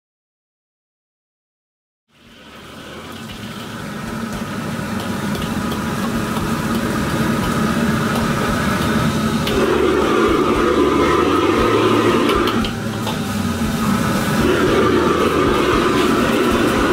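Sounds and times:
gas wok burner roaring: 0:02.1 - 0:16.9
noodles sizzling in a wok: 0:02.1 - 0:16.9
ladle scraping a wok: 0:04.9 - 0:16.9.

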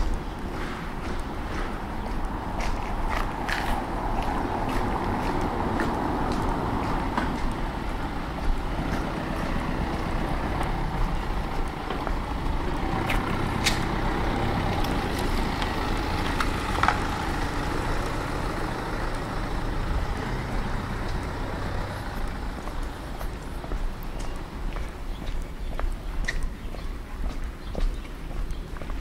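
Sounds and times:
heavy engine running: 0:04.0 - 0:24.3.

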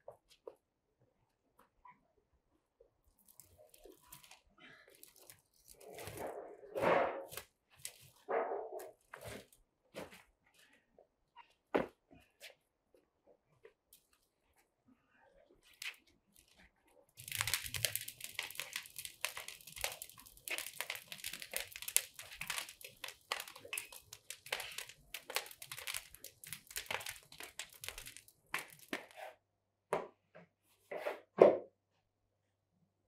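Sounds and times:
brushwood fire crackling: 0:03.2 - 0:06.4, 0:07.3 - 0:08.2, 0:15.6 - 0:29.2.

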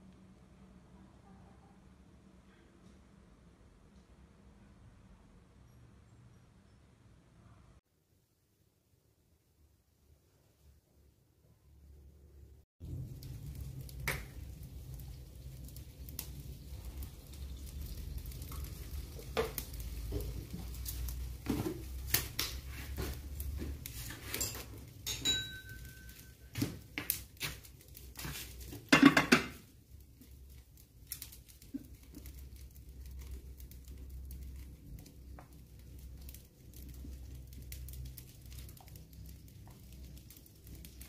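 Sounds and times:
kitchenware clinking and knocking: 0:24.1 - 0:26.2, 0:28.9 - 0:29.7
ringing clink: 0:24.5 - 0:26.2.

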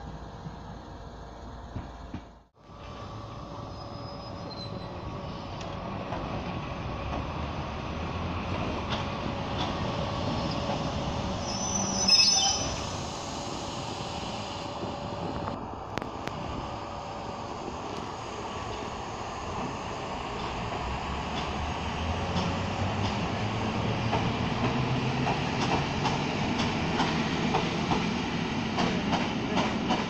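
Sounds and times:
electric train hum: 0:00.0 - 0:30.0
high wheel squeal: 0:03.7 - 0:05.0, 0:11.4 - 0:13.3.

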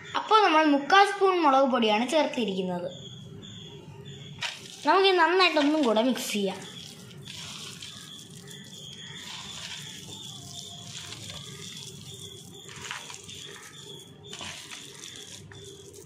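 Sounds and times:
wet squishing of kneaded mixture: 0:04.3 - 0:16.0.

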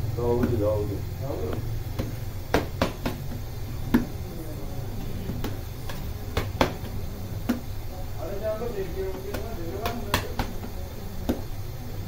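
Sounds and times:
steady low hum: 0:00.0 - 0:12.0
dough slapping on bench: 0:00.3 - 0:04.3, 0:05.0 - 0:07.9, 0:09.1 - 0:11.6.

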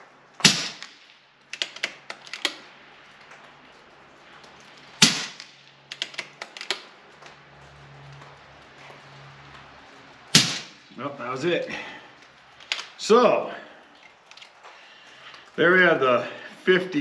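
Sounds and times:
air rifle shots: 0:00.4 - 0:02.6, 0:05.0 - 0:06.7, 0:10.3 - 0:10.9
mechanical clicks of rifle cocking: 0:00.4 - 0:03.4, 0:04.4 - 0:06.9, 0:12.6 - 0:13.0.

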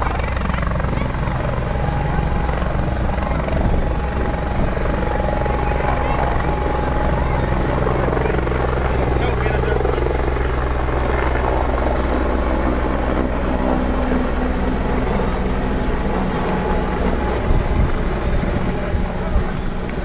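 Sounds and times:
wind buffeting microphone: 0:00.0 - 0:09.2, 0:14.2 - 0:20.0
helicopter rotor and turbine drone: 0:00.0 - 0:20.0.

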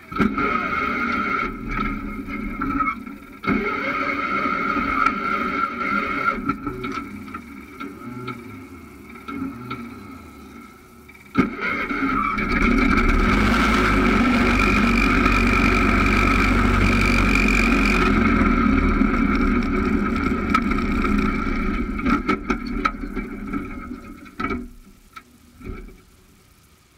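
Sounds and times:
tractor engine whining at full throttle: 0:07.3 - 0:23.7.

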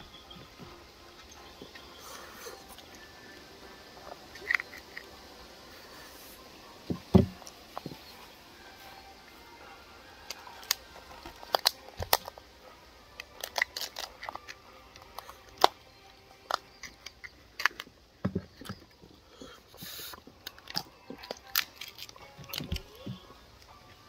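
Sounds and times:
crab shell clicking and cracking: 0:04.3 - 0:05.2, 0:10.2 - 0:12.4, 0:13.1 - 0:18.9, 0:20.1 - 0:23.7.

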